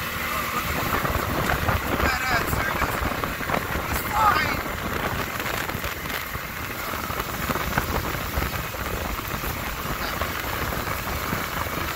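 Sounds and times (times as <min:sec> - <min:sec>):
tyres on loose gravel: 0:00.1 - 0:11.9
wind rushing: 0:00.6 - 0:11.9.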